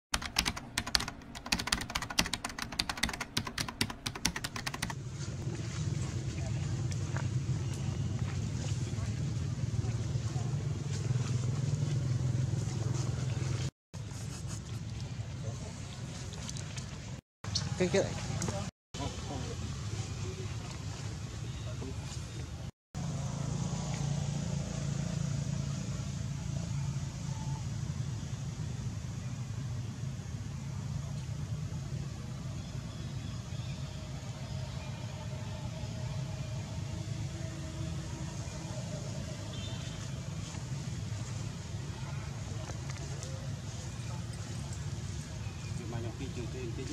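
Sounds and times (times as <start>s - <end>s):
keyboard key clicks: 0.2s - 5.0s.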